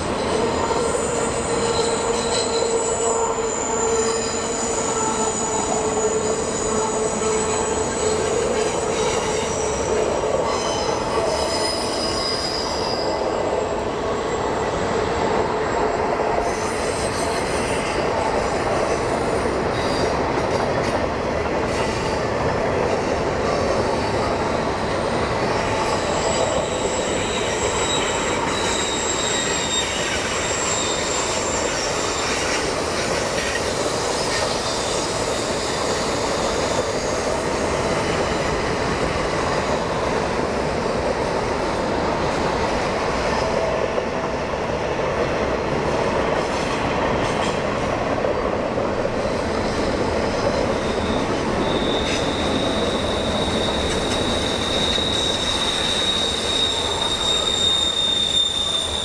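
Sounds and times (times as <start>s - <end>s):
high wheel squeals: 0.0s - 20.4s, 23.0s - 44.1s, 49.1s - 59.0s
steel wheels rumbling on rail: 0.0s - 59.0s.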